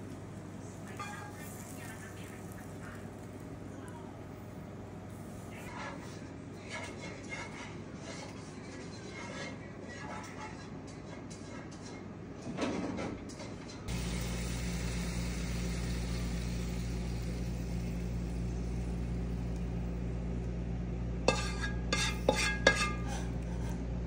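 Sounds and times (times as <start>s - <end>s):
steady low hum: 0.0s - 10.0s, 13.9s - 24.0s
cutlery clinking against dishes: 21.3s - 23.1s.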